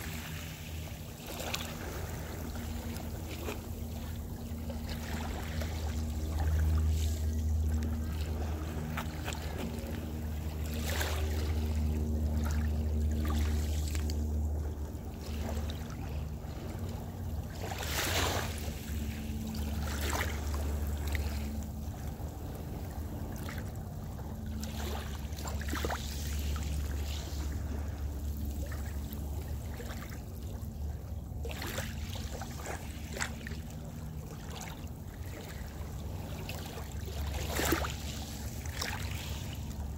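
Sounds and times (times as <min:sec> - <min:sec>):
faint droning hum: 0:00.0 - 0:39.9
steady low rumble: 0:00.0 - 0:39.9
waves splashing on seawall: 0:31.4 - 0:39.9.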